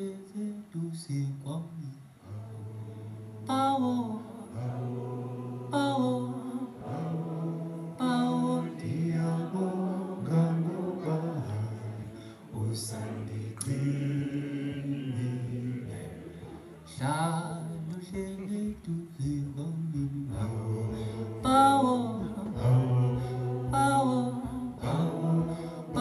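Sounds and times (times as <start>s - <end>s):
man singing into a microphone: 0.0s - 2.4s, 16.9s - 26.0s.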